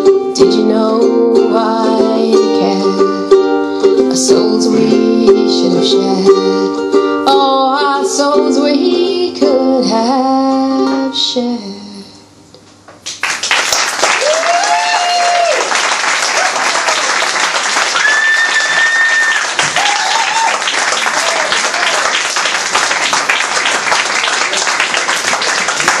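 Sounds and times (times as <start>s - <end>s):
audience applause: 13.2s - 26.0s.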